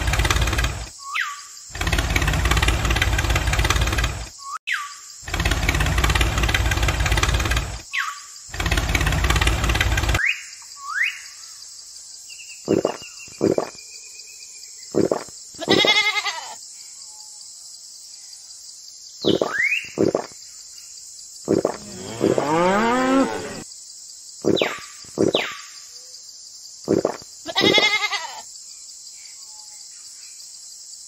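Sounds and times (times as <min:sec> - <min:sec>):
vehicle engine running: 0:00.0 - 0:00.9, 0:01.7 - 0:04.3, 0:05.3 - 0:07.8, 0:08.5 - 0:10.2, 0:21.5 - 0:23.6
bird chirps: 0:00.9 - 0:01.7, 0:04.3 - 0:05.2, 0:07.9 - 0:08.4, 0:10.2 - 0:15.3, 0:19.1 - 0:23.6, 0:24.4 - 0:27.2
goat-like bleat: 0:15.6 - 0:16.6, 0:27.5 - 0:28.4.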